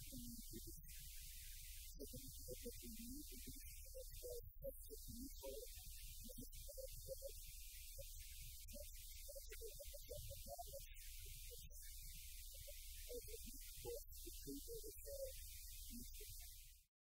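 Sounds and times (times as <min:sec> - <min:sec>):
muffled man's voice: 0:00.0 - 0:07.4, 0:12.5 - 0:16.6
electrical hum with hiss: 0:00.0 - 0:16.9.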